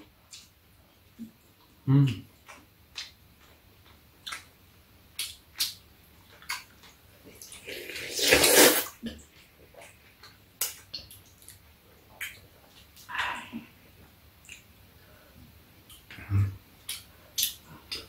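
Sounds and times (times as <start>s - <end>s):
noodles being slurped: 7.5s - 9.0s.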